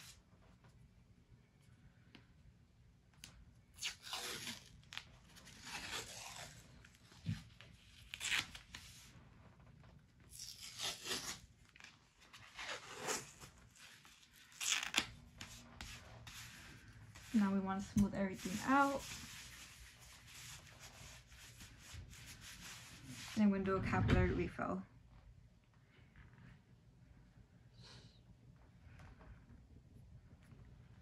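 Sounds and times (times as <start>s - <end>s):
athletic tape ripping: 3.7s - 9.1s, 10.2s - 16.5s.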